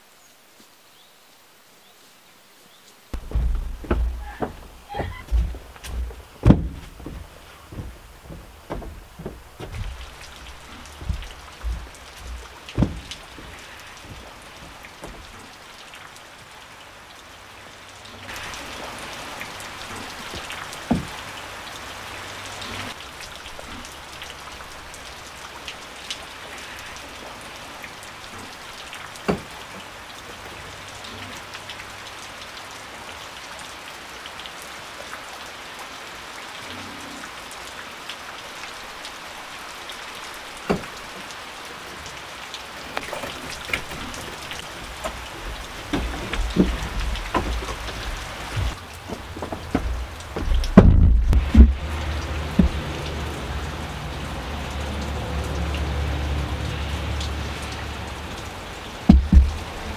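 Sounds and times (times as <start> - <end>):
rain falling: 0.0 - 59.9
sharp knocks: 3.2 - 15.5, 20.9 - 21.2, 40.7 - 40.9, 43.0 - 52.8, 59.1 - 59.7.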